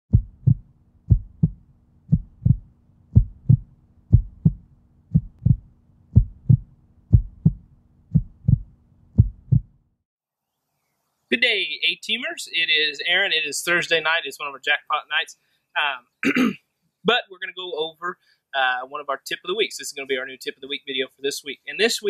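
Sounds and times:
heartbeat thumps: 0.1s - 9.8s
faint low hum: 0.1s - 10.0s.

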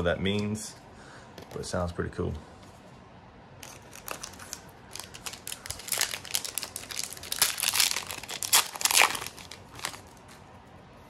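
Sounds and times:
foil wrapper crinkling: 3.6s - 10.3s.

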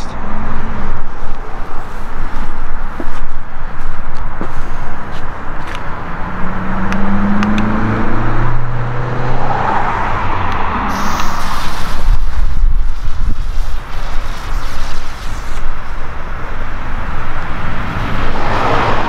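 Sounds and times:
engine hum: 0.0s - 19.0s
wind rumbling on microphone: 0.2s - 19.0s
fountain firework hissing: 10.9s - 17.4s.

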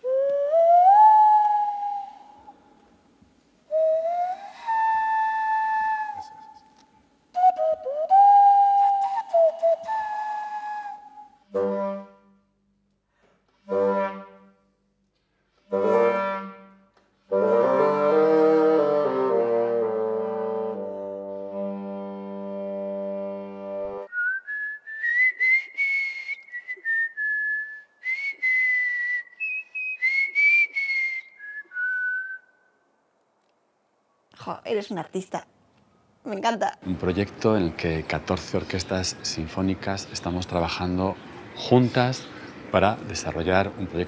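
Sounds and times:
cupped-hand whistling: 0.0s - 2.5s, 3.7s - 11.4s, 24.1s - 32.7s
bassoon and clarinet duet: 11.5s - 12.2s, 13.7s - 14.4s, 15.7s - 24.1s.

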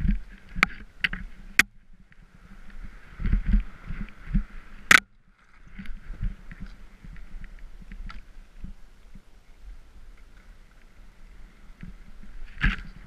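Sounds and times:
skis sliding through snow: 0.0s - 13.0s
wind rumble: 0.0s - 13.0s.

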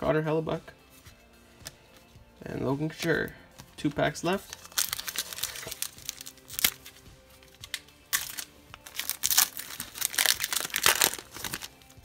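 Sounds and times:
faint background music: 0.0s - 12.0s
card wrapper crinkling and tearing: 4.4s - 12.0s.

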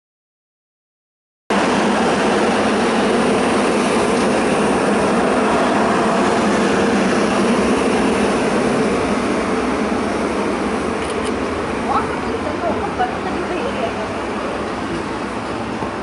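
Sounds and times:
funicular car rushing on rails: 1.5s - 16.0s.

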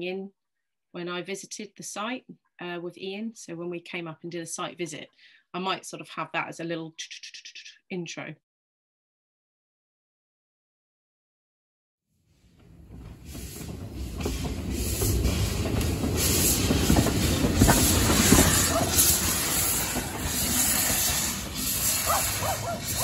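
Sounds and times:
wheels clattering over rails: 12.4s - 23.0s
steam hissing: 12.9s - 23.0s.

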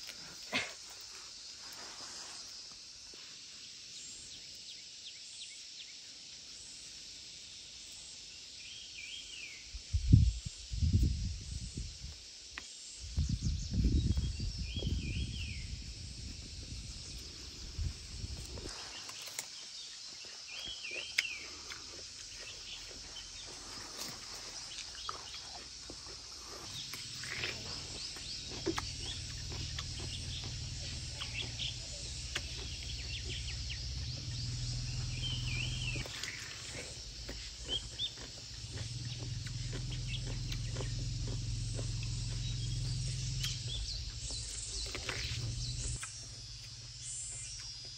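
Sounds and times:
insect chorus: 0.0s - 47.9s
bird calls: 17.1s - 47.9s.

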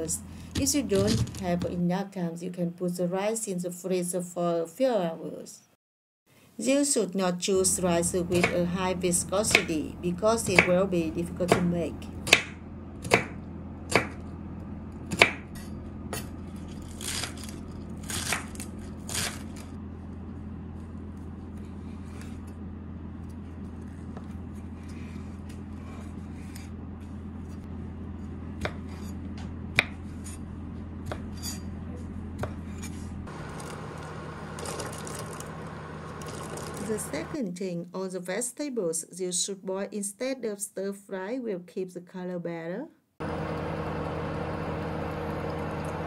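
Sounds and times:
steady low hum: 7.6s - 37.4s
knife chopping on wooden board: 9.5s - 9.7s, 10.4s - 10.8s, 11.5s - 14.2s, 15.1s - 16.3s, 28.6s - 30.4s, 31.0s - 33.0s
water boiling in pot: 33.3s - 37.4s
vegetables dropping into water: 34.6s - 35.6s.

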